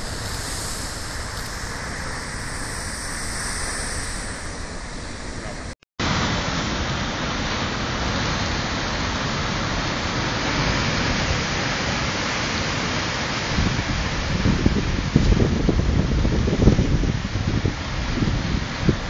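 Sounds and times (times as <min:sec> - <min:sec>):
wind buffeting microphone: 0:00.0 - 0:05.8, 0:13.4 - 0:19.0
surf crashing on rocks: 0:00.0 - 0:14.9.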